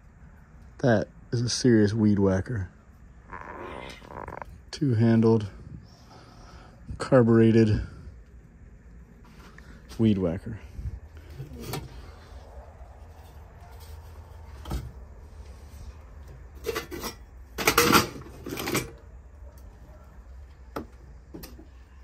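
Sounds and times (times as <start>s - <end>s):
metal and crockery clinking: 16.6s - 19.0s.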